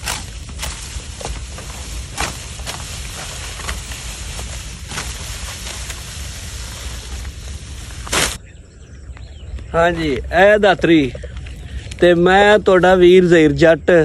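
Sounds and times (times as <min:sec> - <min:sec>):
sickle crunching through stalks: 0:00.0 - 0:08.4
stalks rustling: 0:00.0 - 0:08.4.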